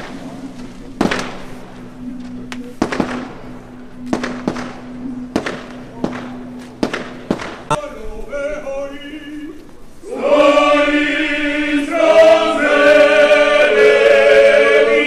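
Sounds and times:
choir singing held chords: 3.1 - 15.0.

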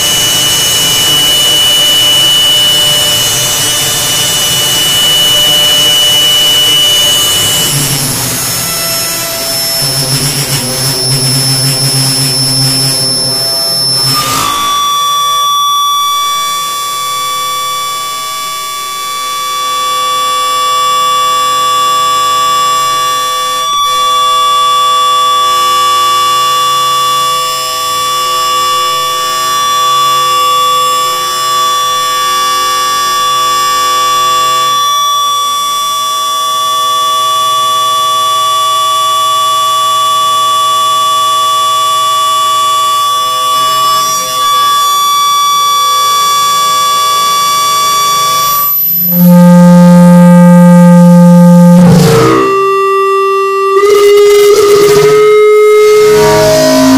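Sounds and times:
electronic drone music: 0.0 - 18.4, 43.0 - 56.9.

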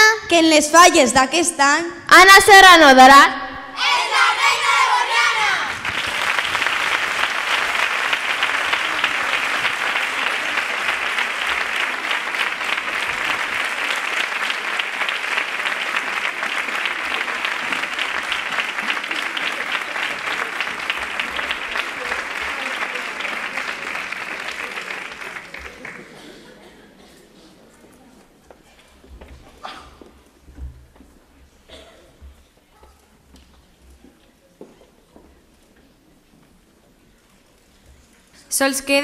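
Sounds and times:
audience applauding: 5.6 - 26.6.

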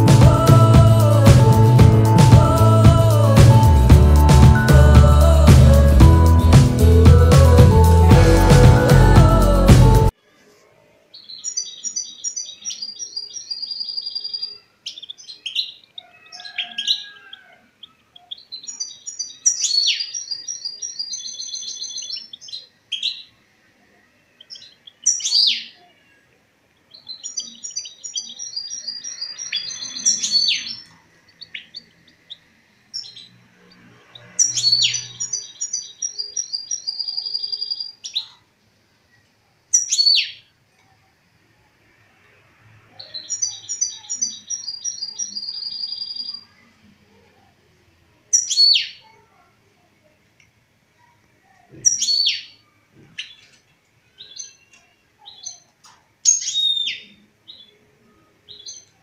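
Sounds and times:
finch twittering song: 34.2 - 38.3, 43.0 - 46.4.

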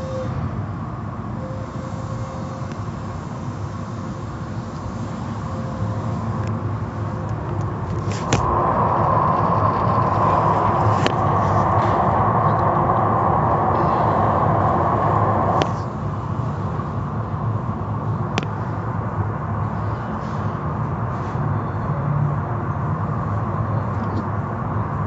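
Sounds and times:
machinery running: 1.2 - 19.2.

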